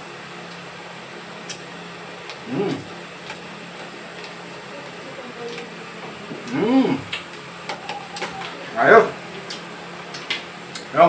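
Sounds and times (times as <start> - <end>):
low background hum: 0.0 - 11.0
person humming: 2.4 - 2.9, 6.4 - 7.2.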